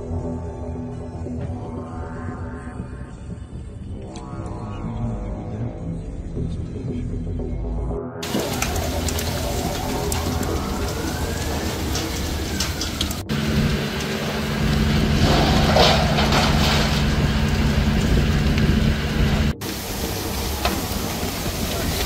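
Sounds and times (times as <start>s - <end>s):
low hum: 0.0s - 22.0s
fire hose water spraying: 8.2s - 22.0s.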